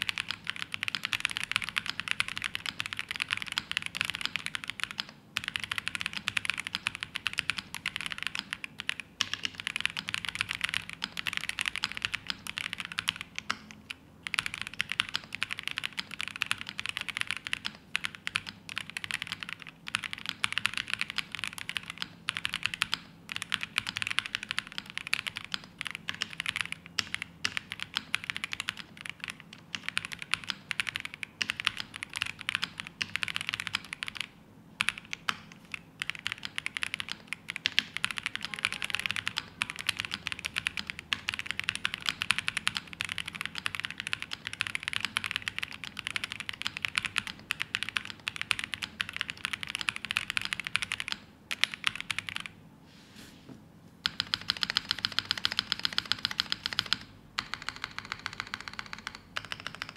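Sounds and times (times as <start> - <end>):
mechanical keyboard typing: 0.0 - 52.6, 54.0 - 59.9.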